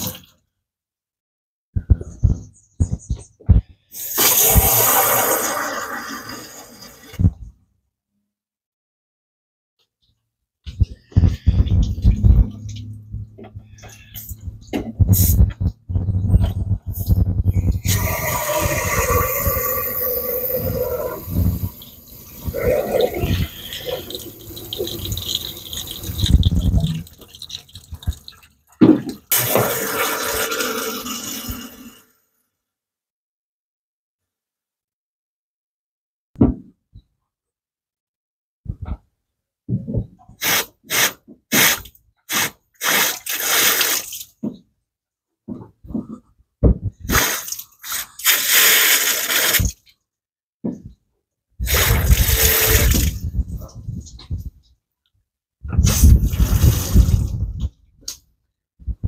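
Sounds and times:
water spraying from hose nozzle: 4.0s - 7.0s, 17.8s - 28.4s, 40.4s - 44.3s, 47.1s - 49.8s, 51.6s - 53.2s, 55.8s - 57.4s
thump: 36.4s - 36.7s.

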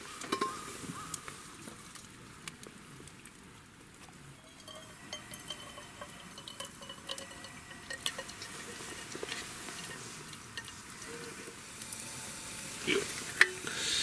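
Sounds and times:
water trickling into coffee filter: 4.4s - 13.8s.

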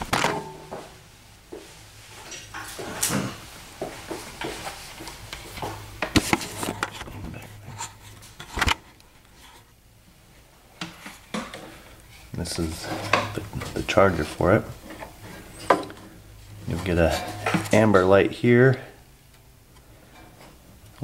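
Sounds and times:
things being handled: 2.2s - 9.7s, 10.8s - 18.2s.

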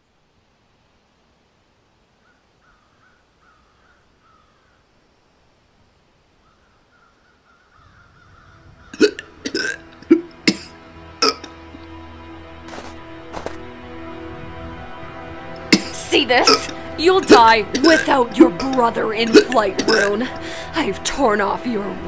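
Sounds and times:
low drone: 8.7s - 22.0s
sharp gasping vocal sounds: 19.4s - 20.7s.

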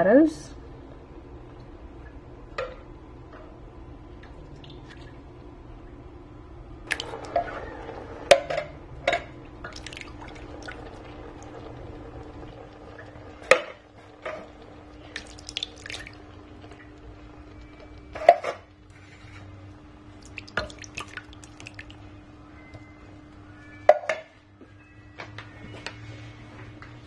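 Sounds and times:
small clicks and drips: 4.2s - 5.2s, 9.1s - 19.0s, 20.1s - 22.1s.

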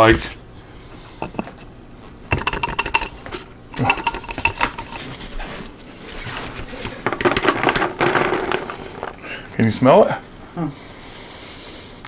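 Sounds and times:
glass bowl clinks: 2.3s - 3.2s, 3.8s - 5.0s
popcorn rattling onto paper plate: 2.3s - 3.2s, 3.8s - 5.2s, 6.4s - 9.4s.

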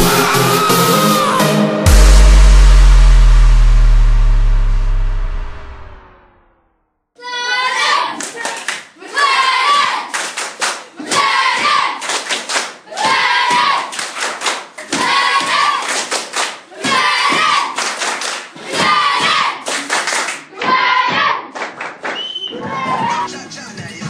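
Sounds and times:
children clapping: 7.8s - 23.2s.

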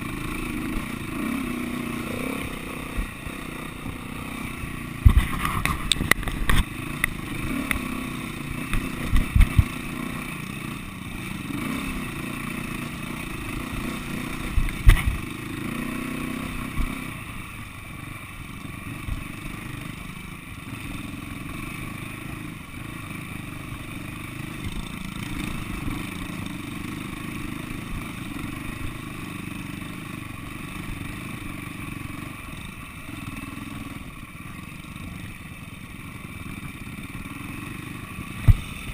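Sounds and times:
knocks and clatter over rough ground: 0.0s - 10.6s, 11.6s - 17.2s, 37.3s - 38.9s
motorcycle engine running: 0.0s - 38.9s.

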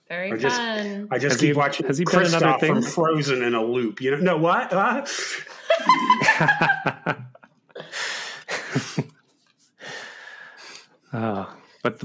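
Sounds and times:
people laughing: 5.2s - 9.2s.

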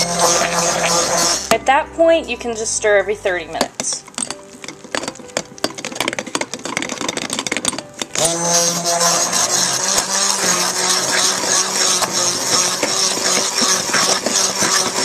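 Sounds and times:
small electric motor humming: 0.0s - 1.5s, 8.2s - 15.0s
metal utensil scraping paste: 0.0s - 1.7s, 3.4s - 15.0s.

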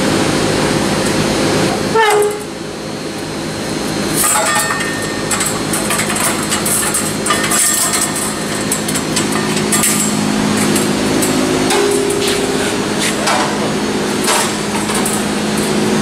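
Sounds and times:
steady hum: 0.0s - 16.0s
metal bandsaw blade clattering: 4.2s - 15.3s.

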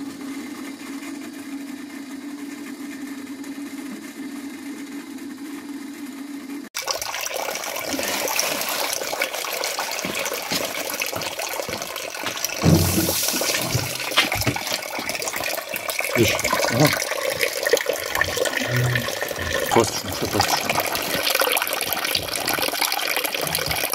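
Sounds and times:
juice splashing into bucket: 6.8s - 23.9s
knocks and handling noise: 11.7s - 15.2s.

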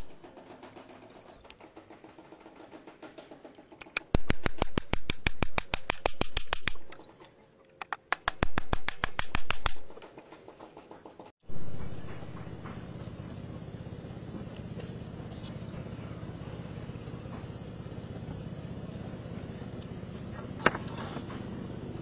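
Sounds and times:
hammer striking nail into wood: 7.8s - 9.9s.

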